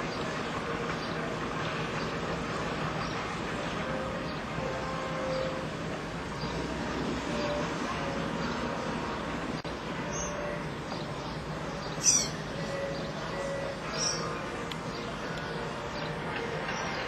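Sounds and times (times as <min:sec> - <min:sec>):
distant activity: 0:00.0 - 0:17.0
wind: 0:00.0 - 0:17.0
faint bird chirps: 0:11.8 - 0:14.4
sharp high bird call: 0:12.0 - 0:12.4.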